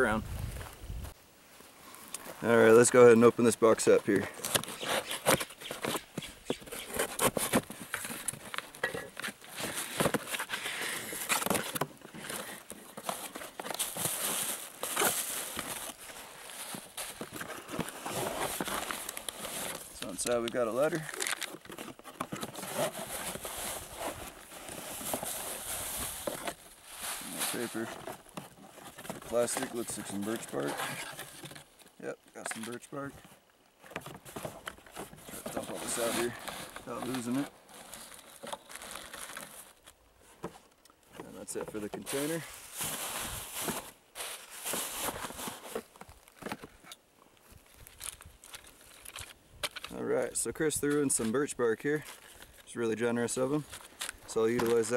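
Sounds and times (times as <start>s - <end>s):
cardboard box and paper rustling: 4.1s - 31.7s, 33.9s - 40.6s, 41.2s - 46.8s.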